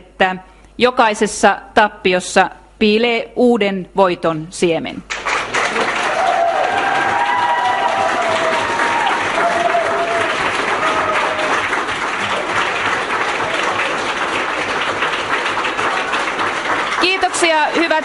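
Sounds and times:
crowd applauding: 5.1s - 18.0s.

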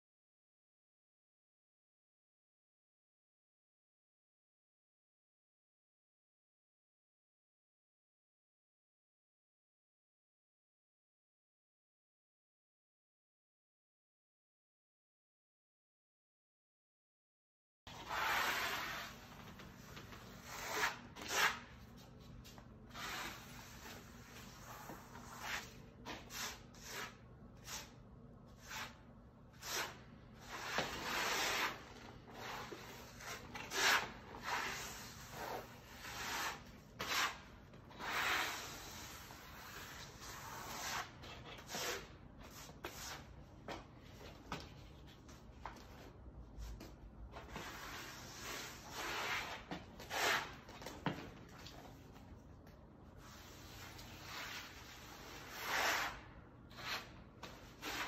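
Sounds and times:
trowel scraping concrete floor: 17.9s - 52.4s, 53.2s - 58.0s.

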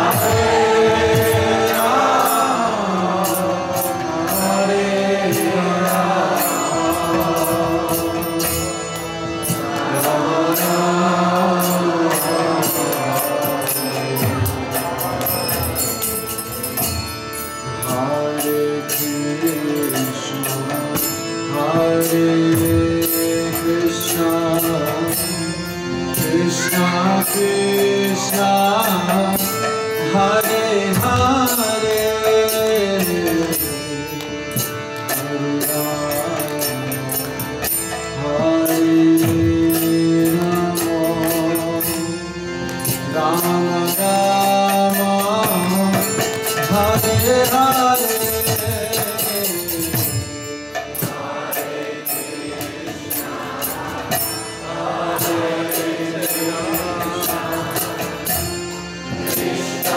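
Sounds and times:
harmonium chords: 0.0s - 59.9s
man singing devotional melody: 0.0s - 59.9s
fast ticking percussion: 26.2s - 59.9s.

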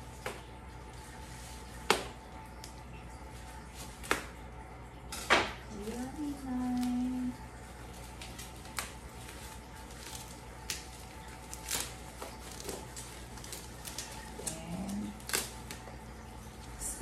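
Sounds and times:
plastic packaging rustling: 5.1s - 16.8s.

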